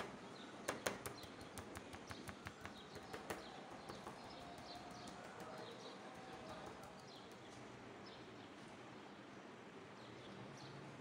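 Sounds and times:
rolling pin tapping meat: 0.0s - 7.6s.

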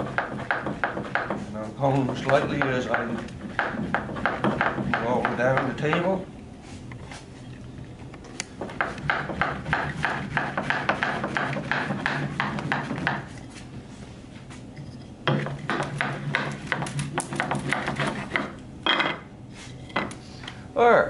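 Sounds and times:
wooden block rubbing and knocking: 15.3s - 18.5s.

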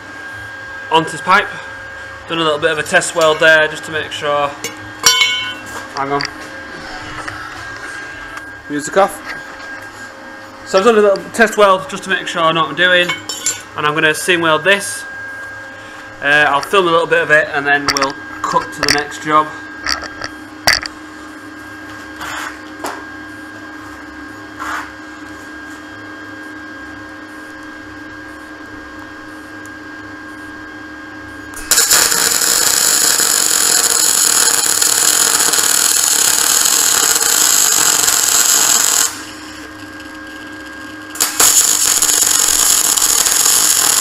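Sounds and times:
low hum: 1.1s - 11.3s
welder arc crackling: 31.6s - 44.0s.

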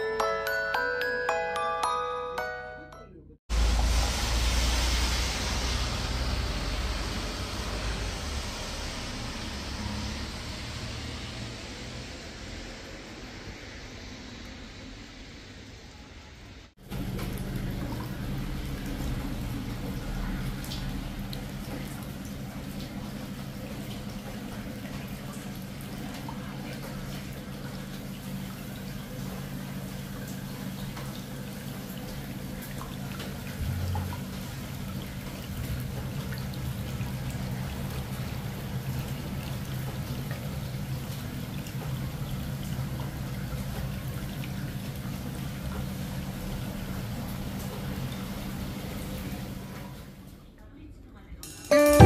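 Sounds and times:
water pouring and trickling: 16.8s - 50.2s
low steady hum: 33.6s - 36.5s.

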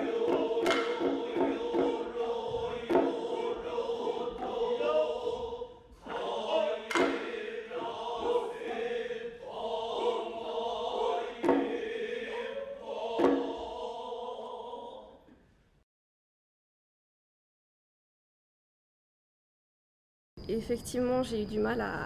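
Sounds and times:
sharp percussion strikes: 0.0s - 5.2s, 6.0s - 9.0s, 10.0s - 13.9s
chanting voices holding long notes: 0.0s - 15.4s.

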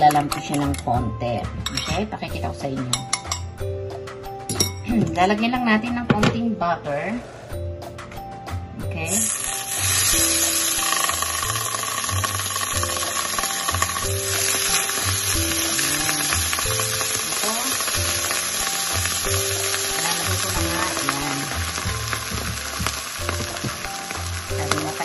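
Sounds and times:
butter sizzling in frying pan: 9.1s - 25.0s
egg frying: 9.1s - 25.0s.

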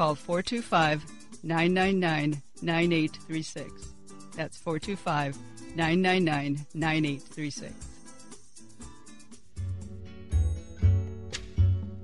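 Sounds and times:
instrumental music with heavy bass: 6.8s - 12.0s.

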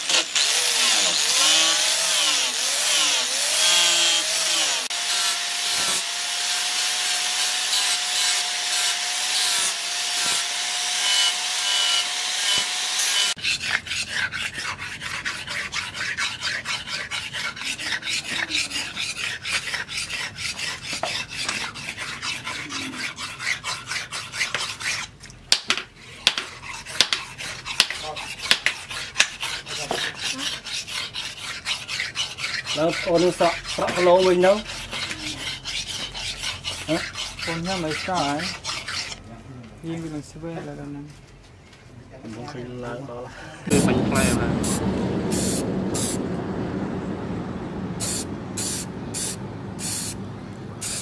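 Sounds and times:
angle grinder grinding steel: 0.0s - 24.5s, 26.7s - 39.2s
blade scraping on sharpening stone: 26.3s - 39.2s.

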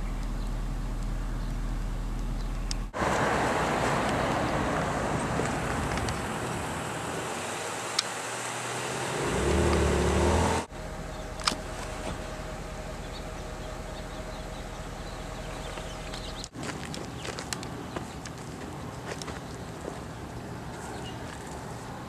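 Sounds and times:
vehicle engine passing close: 2.3s - 16.5s
rush of passing cars: 2.9s - 10.8s.

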